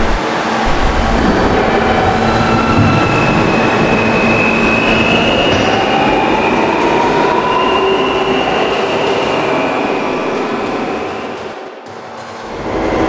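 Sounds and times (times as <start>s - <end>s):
low tone rising in pitch: 0.0s - 6.7s
loud train rumble: 0.0s - 13.0s
train wheels squealing on rail: 1.5s - 11.5s.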